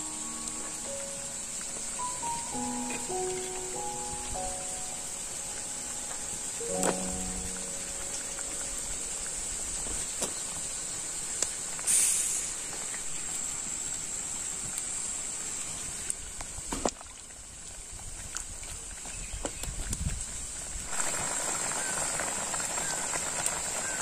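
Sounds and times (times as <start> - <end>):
soup simmering hiss: 0.0 - 24.0
wood fire crackles: 0.0 - 24.0.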